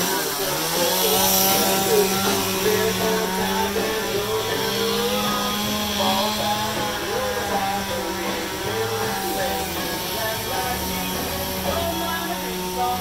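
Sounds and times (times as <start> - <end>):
background music: 0.0 - 13.0
chainsaw running: 0.0 - 13.0.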